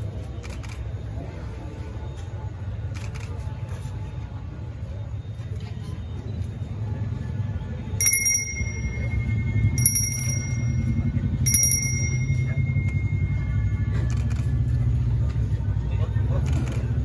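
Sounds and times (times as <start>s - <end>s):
low steady background rumble: 6.8s - 17.0s
hand bell ringing: 8.0s - 14.1s.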